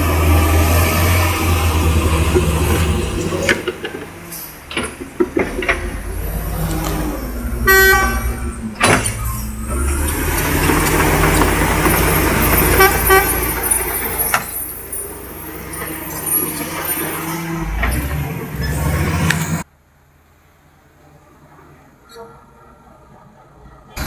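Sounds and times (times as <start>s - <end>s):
truck diesel engine under load: 0.0s - 19.7s
truck horn: 5.9s - 10.2s, 10.9s - 14.8s.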